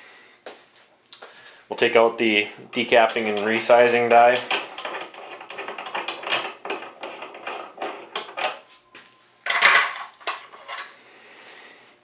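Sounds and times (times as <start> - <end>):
metal die clicking and rattling: 2.7 - 8.6.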